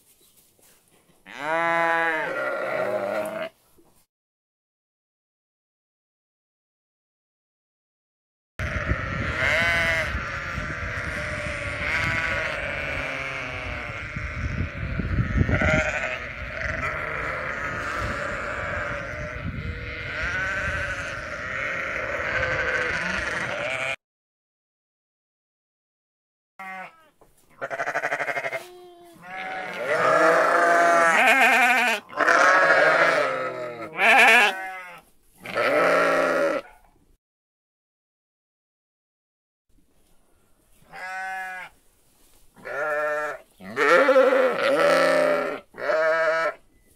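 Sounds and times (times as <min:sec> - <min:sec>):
sheep bleating: 0:01.3 - 0:03.6, 0:08.6 - 0:24.0, 0:26.6 - 0:36.8, 0:40.9 - 0:41.8, 0:42.6 - 0:46.6.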